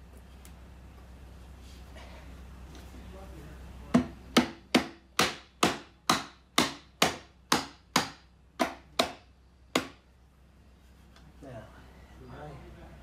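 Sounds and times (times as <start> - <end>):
mallet knocking on wood: 3.9 - 9.2.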